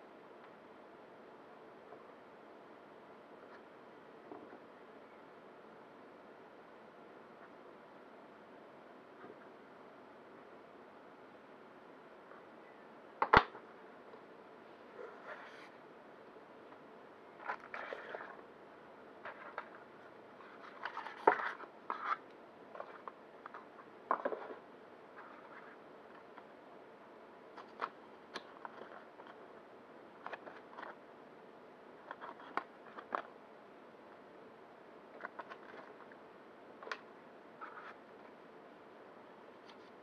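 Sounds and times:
paper and cardboard rustling: 19.2 - 26.4, 27.6 - 29.4, 32.0 - 33.3, 37.6 - 38.0.

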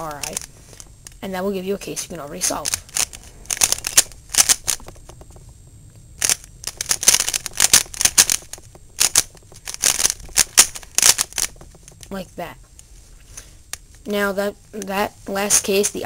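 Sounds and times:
puzzle cube clicking: 0.0 - 0.5, 2.4 - 5.5, 6.2 - 12.2.

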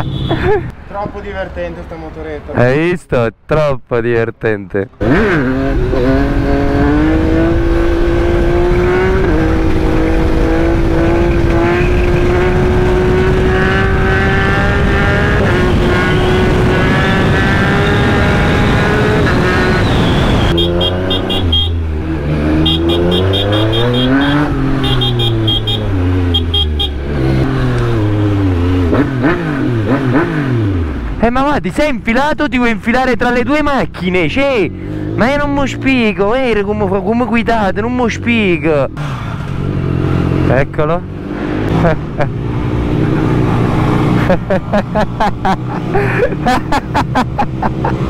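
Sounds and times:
motorcycle engine revving: 5.0 - 31.2, 38.0 - 48.0.

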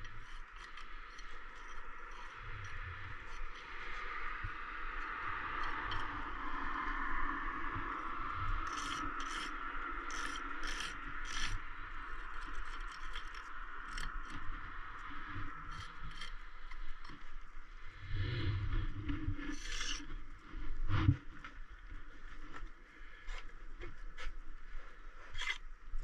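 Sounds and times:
trowel scraping and tapping mortar: 10.1 - 11.6.

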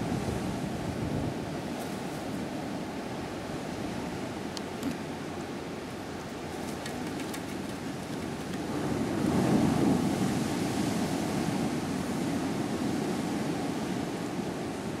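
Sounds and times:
wind on microphone: 0.0 - 2.8, 6.5 - 15.0.

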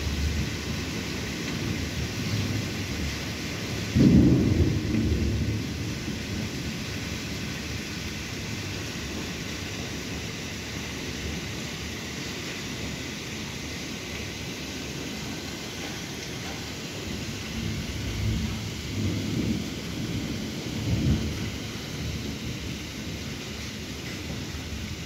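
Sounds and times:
thunder rumbling: 0.0 - 9.8, 16.4 - 25.0
steady rain hiss: 0.0 - 25.0.

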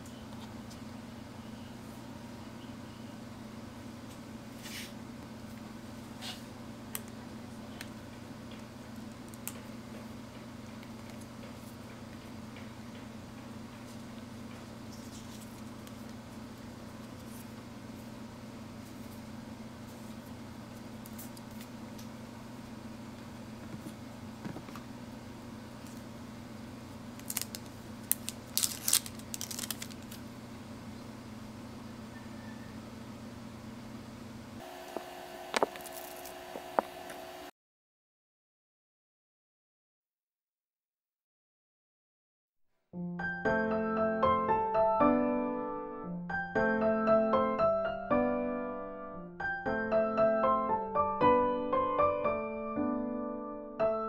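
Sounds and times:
paper rustling: 14.8 - 16.2, 27.2 - 30.2, 35.6 - 36.4
plastic wrap crinkling: 27.1 - 30.3, 35.6 - 36.4.

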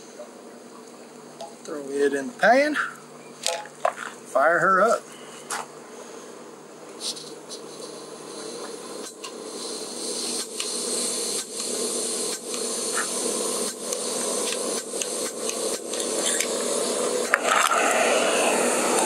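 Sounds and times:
gas hissing from stove burner: 7.0 - 19.0.

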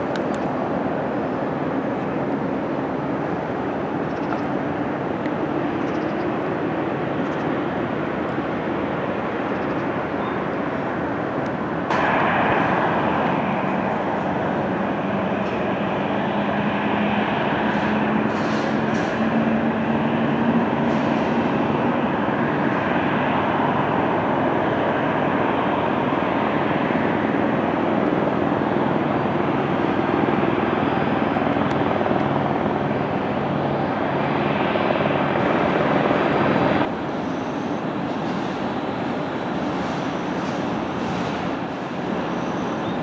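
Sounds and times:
jet engines taxiing: 0.0 - 43.0.

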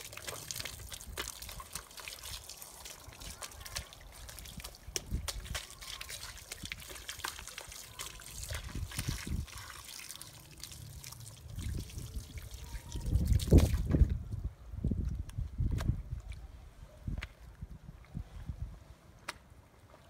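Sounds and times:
hose water trickling and splashing: 0.0 - 14.1
water splashing onto concrete: 0.0 - 14.1.

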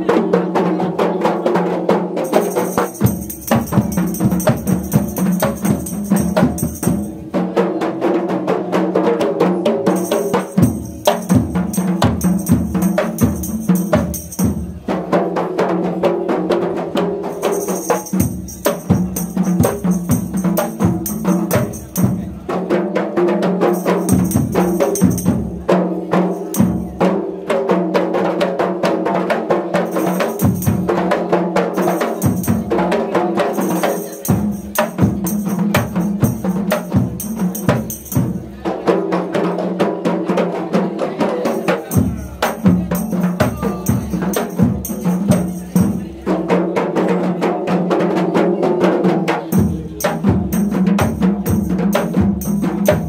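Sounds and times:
hand-slapped frame drums: 16.9 - 22.3, 23.6 - 26.9, 29.8 - 38.5.

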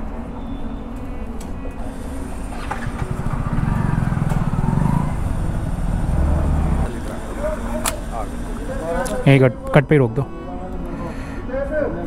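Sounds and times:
vehicle engine running: 1.8 - 9.7.

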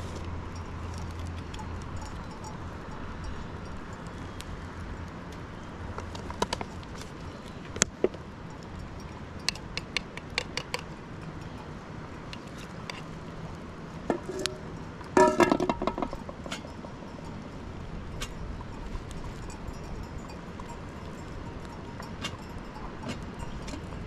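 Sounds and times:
cookware clinking: 15.2 - 16.9.

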